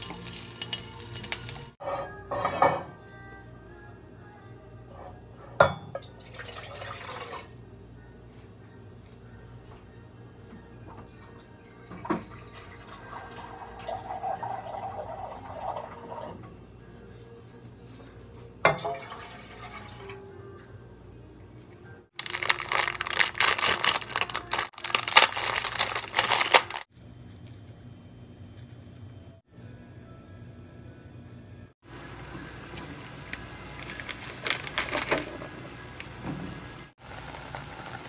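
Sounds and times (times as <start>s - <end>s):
kitchen utensils clinking: 0.0s - 2.9s
water pouring into a bowl: 19.0s - 20.0s.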